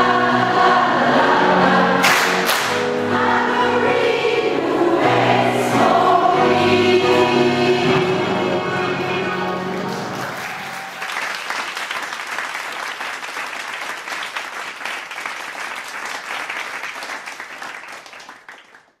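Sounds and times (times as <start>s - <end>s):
choir singing: 0.0s - 10.4s
crowd applauding: 2.0s - 2.9s, 9.2s - 19.0s.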